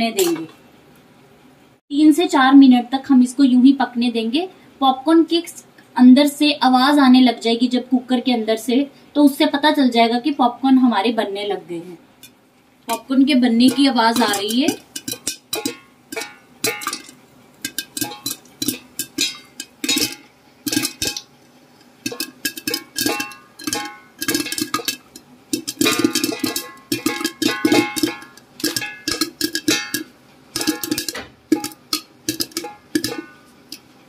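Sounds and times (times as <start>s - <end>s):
popcorn popping in metal pot: 12.9s - 34.0s.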